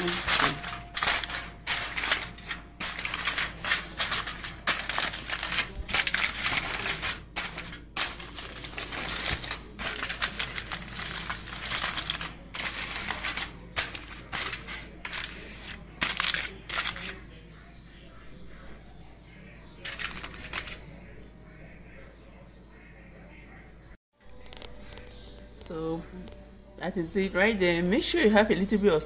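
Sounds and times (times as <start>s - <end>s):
aluminium foil crinkling: 0.0s - 17.3s, 19.8s - 20.8s.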